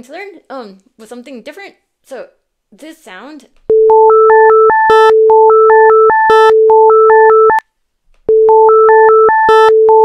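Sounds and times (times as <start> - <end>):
high synth beeps: 3.7 - 7.6, 8.3 - 10.0.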